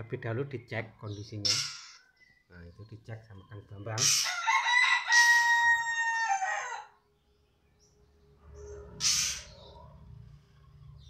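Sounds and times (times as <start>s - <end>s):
harsh squawk: 4.0s - 4.6s, 8.9s - 9.8s
rooster crowing: 4.2s - 7.0s.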